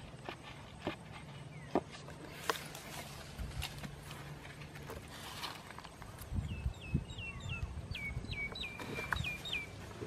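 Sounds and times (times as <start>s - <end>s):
wooden pole knocking and scraping earth: 0.0s - 6.5s, 8.4s - 10.0s.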